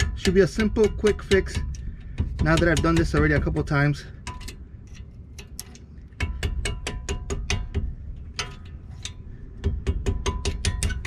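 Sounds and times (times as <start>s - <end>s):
hammer striking metal punch: 0.0s - 3.7s, 6.2s - 8.7s, 9.6s - 11.0s.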